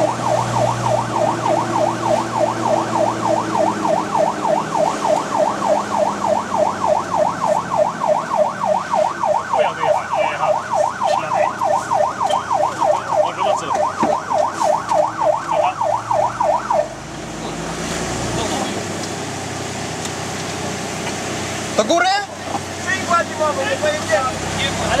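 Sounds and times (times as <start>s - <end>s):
fire engine siren yelping: 0.0s - 17.8s
diesel engine hum: 0.0s - 25.0s.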